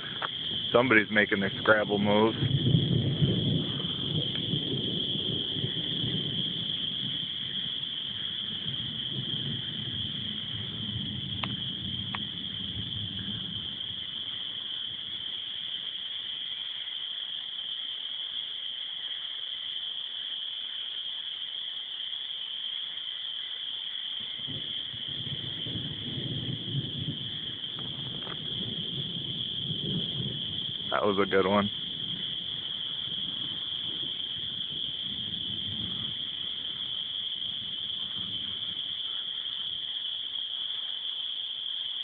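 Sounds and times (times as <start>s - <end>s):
distant thunder rumble: 0.0s - 16.6s, 24.2s - 40.0s
spring peepers chorus: 0.0s - 42.0s.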